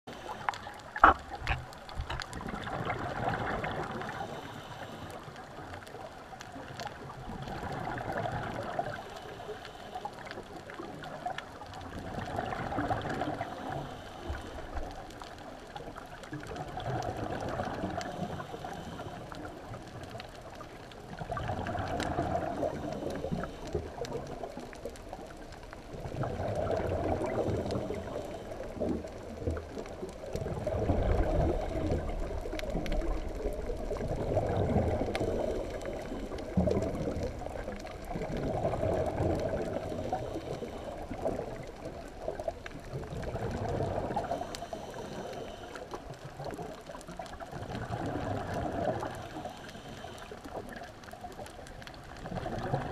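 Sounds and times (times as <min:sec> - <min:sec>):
breath bubbling underwater: 0:00.1 - 0:04.4, 0:21.1 - 0:24.5, 0:25.9 - 0:42.0, 0:42.9 - 0:45.6, 0:52.2 - 0:52.9.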